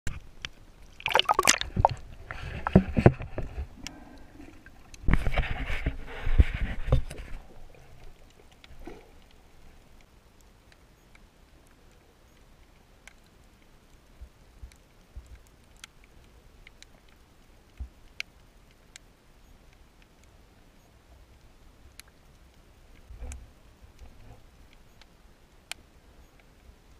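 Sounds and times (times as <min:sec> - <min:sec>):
underwater sound: 0:00.1 - 0:10.1
water splashing and sloshing: 0:00.1 - 0:10.1
faint underwater clicks: 0:00.1 - 0:26.9.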